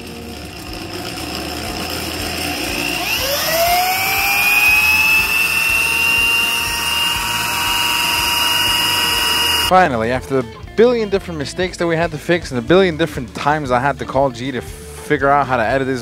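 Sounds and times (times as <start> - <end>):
electric drill whine: 0.0 - 9.7.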